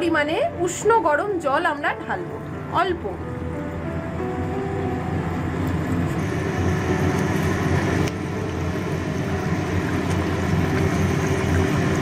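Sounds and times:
continuous low hum: 0.0 - 12.0
curry bubbling and sizzling: 5.7 - 12.0.

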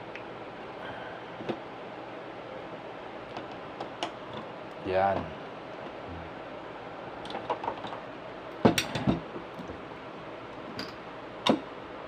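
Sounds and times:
clicks and knocks of fan parts: 3.3 - 4.5, 7.2 - 8.0, 8.6 - 9.8, 10.7 - 11.7.

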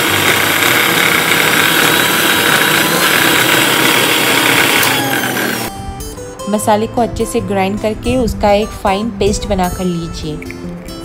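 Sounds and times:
mixer grinder motor running: 0.0 - 5.7.

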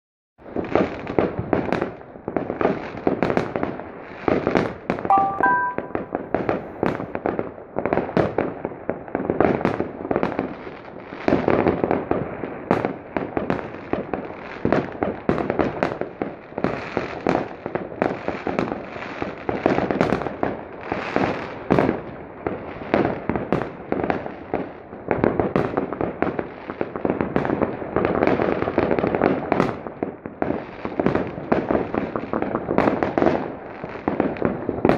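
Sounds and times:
fireworks bangs and crackles: 0.4 - 34.9.

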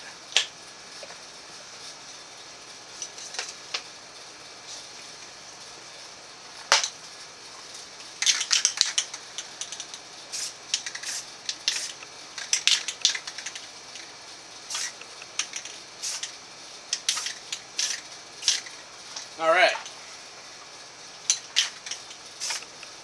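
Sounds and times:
spray paint can hissing: 8.1 - 19.4, 20.7 - 23.0.

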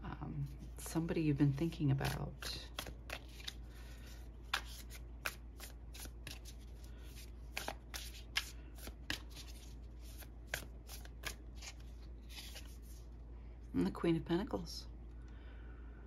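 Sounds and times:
cards being shuffled: 1.5 - 13.0.

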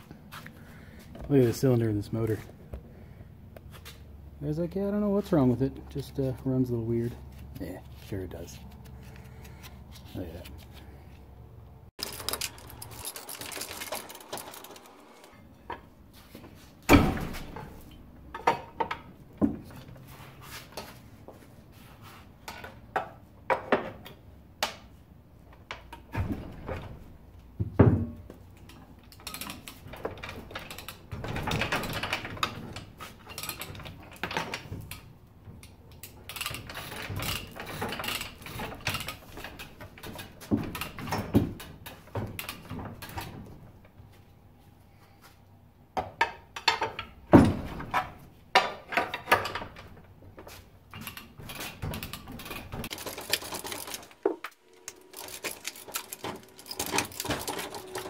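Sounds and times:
metal scraping and rattling: 12.0 - 16.4, 50.9 - 58.0
metal clunks and knocks: 16.9 - 19.9, 25.6 - 35.6, 36.6 - 43.6, 46.0 - 50.1.

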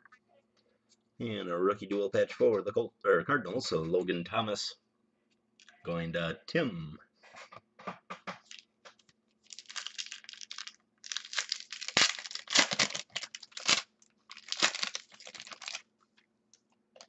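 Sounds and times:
foil wrapper tearing and crinkling: 9.4 - 15.8.

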